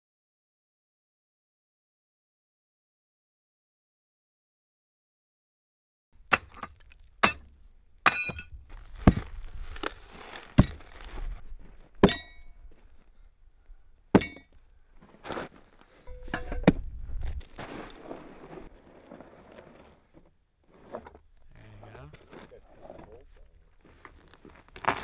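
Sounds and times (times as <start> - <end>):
shovel scraping gravel: 8.1 - 11.4, 15.0 - 16.6, 17.2 - 21.2, 24.1 - 25.0.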